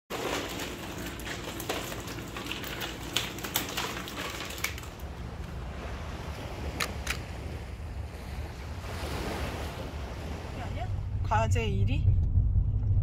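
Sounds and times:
fish flapping in plastic basket: 0.1s - 5.1s
net rustling wetly: 0.1s - 5.2s
water dripping: 0.1s - 5.5s.

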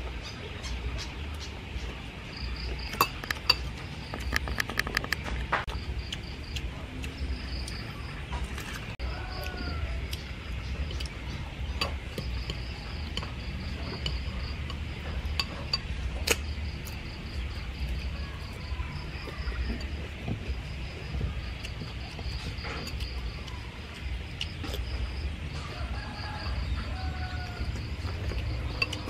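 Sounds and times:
eating sounds: 0.4s - 25.7s
crickets chirping: 2.2s - 8.4s, 9.0s - 29.0s
metal spoon clinking bowl: 2.9s - 3.8s.

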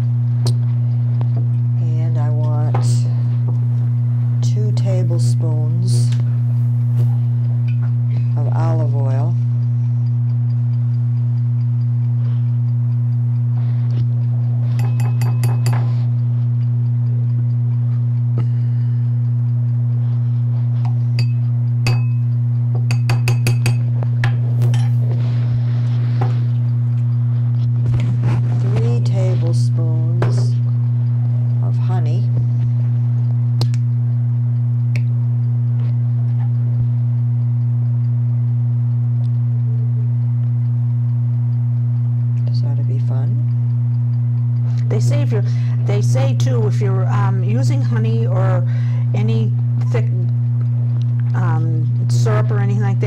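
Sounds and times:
loud electrical hum: 0.0s - 53.0s
spoon clinking on glass bowl: 14.8s - 15.9s, 21.2s - 22.3s, 22.9s - 23.8s.

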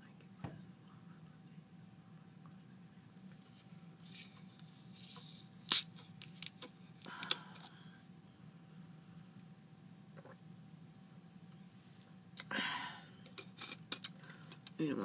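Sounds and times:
carbonation hiss: 4.0s - 5.9s.

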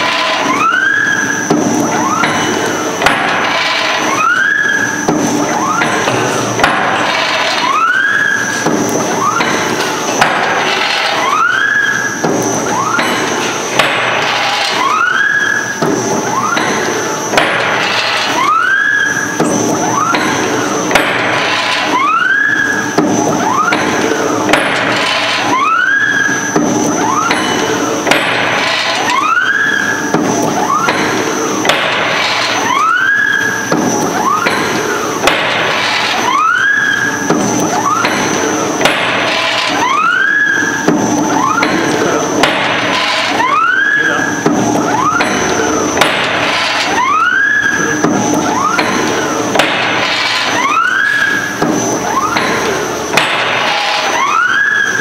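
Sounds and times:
machine clatter: 0.0s - 55.0s
rising machine whine: 0.0s - 55.0s.

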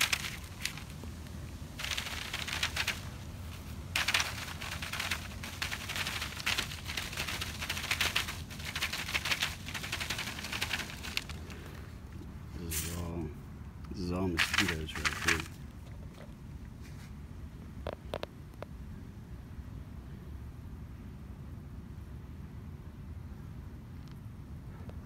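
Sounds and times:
screen filter tapping and rattling: 4.0s - 11.4s.

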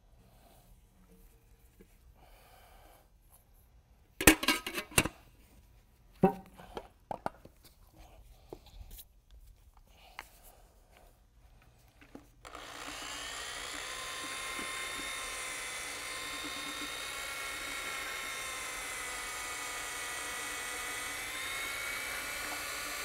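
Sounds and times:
electric paddle mixer whining: 12.4s - 23.0s.

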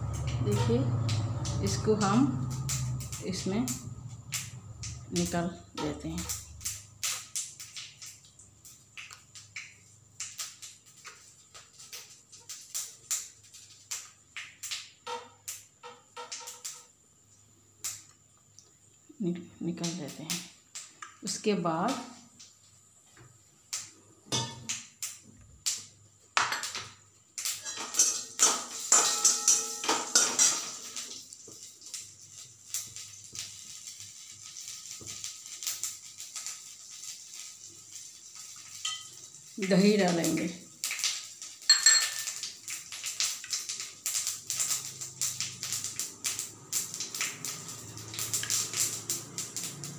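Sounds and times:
steel utensils clinking: 27.6s - 31.0s, 38.8s - 39.2s, 41.7s - 42.4s.

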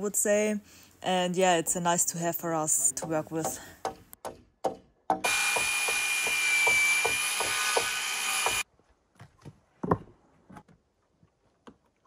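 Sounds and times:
power drill driving into wood: 5.2s - 8.6s.

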